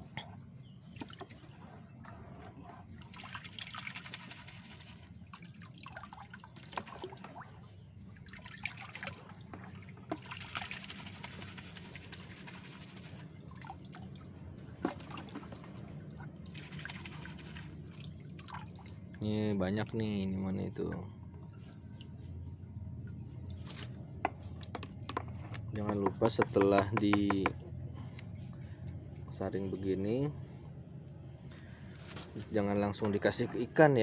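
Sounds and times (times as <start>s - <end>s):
water sloshing and splashing: 0.0s - 19.3s, 20.7s - 26.8s
water dripping from net: 18.0s - 19.2s.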